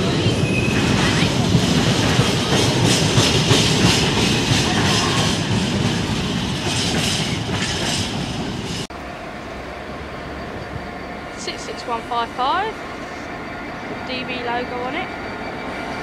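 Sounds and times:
freight train wheels clattering: 0.0 - 8.9.

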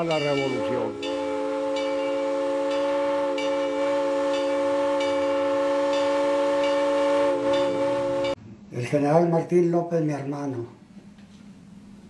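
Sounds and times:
train horn blast: 0.0 - 8.4.

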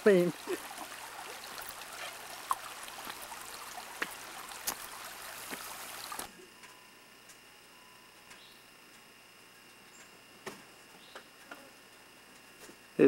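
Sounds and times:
creek water rushing: 0.0 - 6.4
thin steady tones: 0.0 - 9.9.

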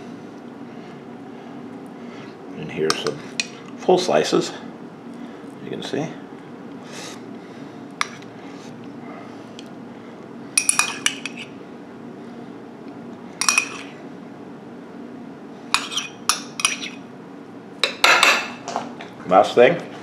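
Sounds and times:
steady low hum: 0.0 - 20.0
metal spoon clinking on ceramic: 10.6 - 11.4, 13.4 - 13.9, 15.8 - 17.0.

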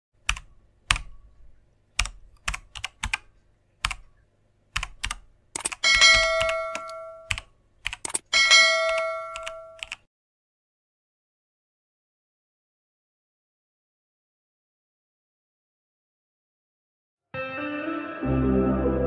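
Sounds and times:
keyboard typing clicks: 0.2 - 1.2, 2.0 - 8.3, 8.9 - 10.1.

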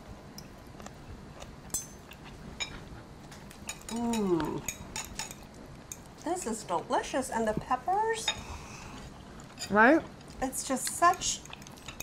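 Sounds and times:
person humming: 3.9 - 4.7.

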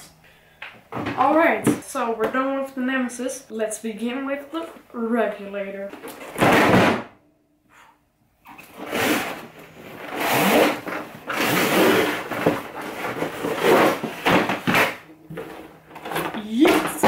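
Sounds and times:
cardboard scraping and rustling: 8.6 - 17.0.

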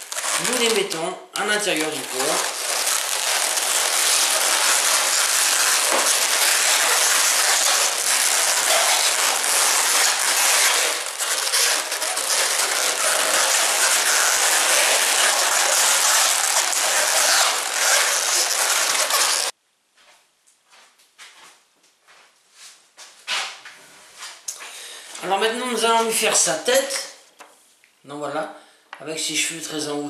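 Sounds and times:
balloons squeaking and creaking: 0.0 - 19.5.

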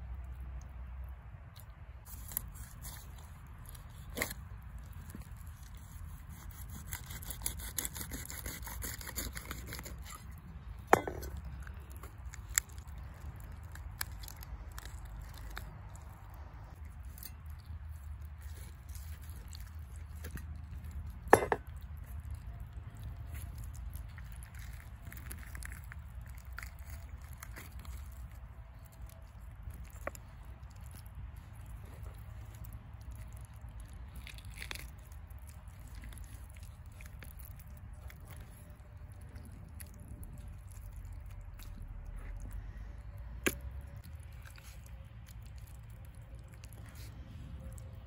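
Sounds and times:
low background rumble: 0.0 - 48.0
raw fish tearing and rustling: 1.2 - 48.0.

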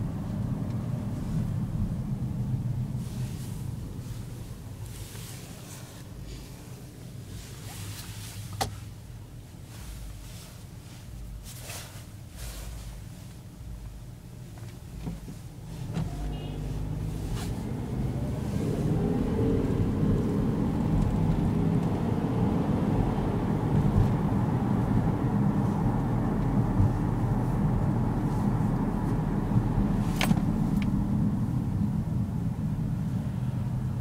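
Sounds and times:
road noise inside car: 0.0 - 34.0
car engine accelerating: 15.0 - 34.0.

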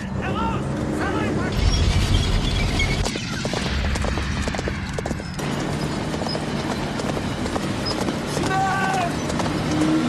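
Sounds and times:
horse hoofbeats galloping: 3.0 - 10.0.

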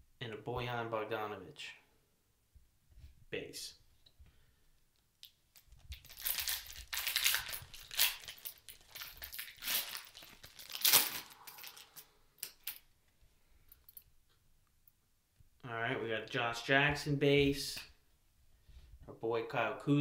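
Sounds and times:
foil wrapper crinkling: 5.2 - 12.8.

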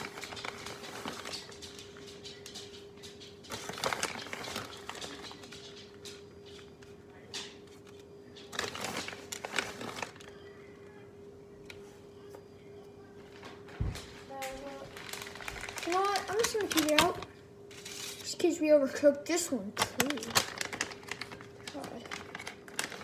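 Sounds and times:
microwave oven humming: 0.0 - 23.0
handling noises: 13.2 - 18.3.

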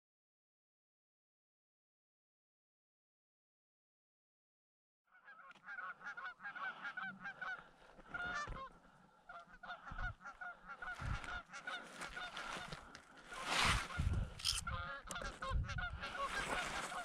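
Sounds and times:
geese honking: 5.1 - 17.0.

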